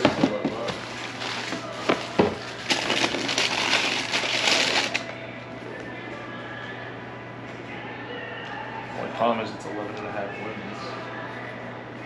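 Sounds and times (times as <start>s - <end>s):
tissue paper crinkling: 0.8s - 5.1s
cardboard box knocking on counter: 1.9s - 2.4s.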